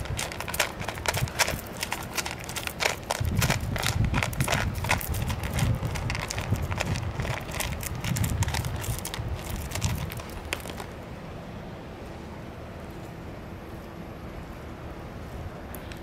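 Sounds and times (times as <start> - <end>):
cat chewing food: 0.0 - 11.0.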